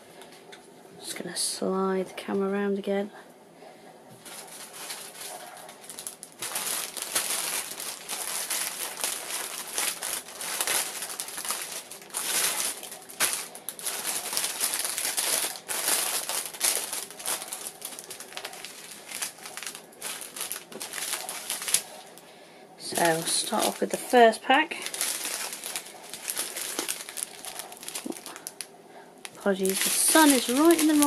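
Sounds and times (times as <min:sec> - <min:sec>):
plastic wrapping crinkling: 0:04.2 - 0:31.0.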